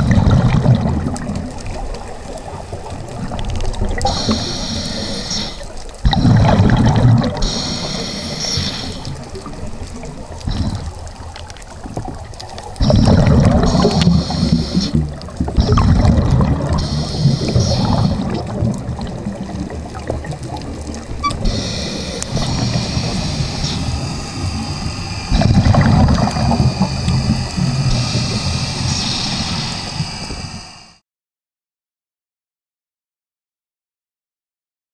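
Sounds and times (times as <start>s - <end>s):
exhaled bubbles gurgling: 0.0s - 30.8s
regulator inhalation hiss: 4.0s - 6.6s, 7.4s - 9.8s, 12.8s - 15.8s, 16.6s - 18.5s, 21.3s - 31.0s.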